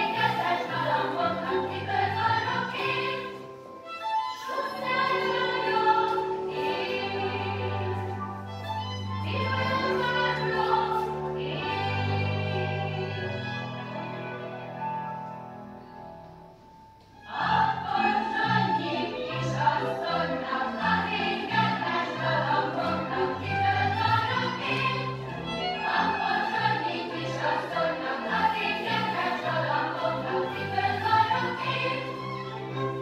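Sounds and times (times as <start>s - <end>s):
choral singing with orchestra: 0.0s - 14.4s, 17.2s - 33.0s.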